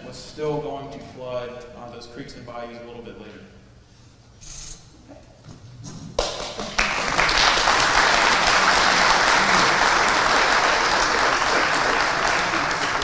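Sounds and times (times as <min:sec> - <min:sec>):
audience applauding: 0:06.2 - 0:13.0.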